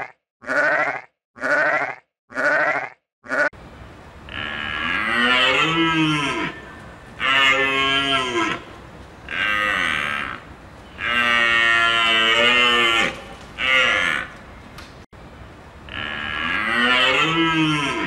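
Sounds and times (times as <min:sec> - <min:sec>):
deep moo-like animal calls: 0:04.3 - 0:08.6, 0:09.3 - 0:14.4, 0:15.9 - 0:18.0.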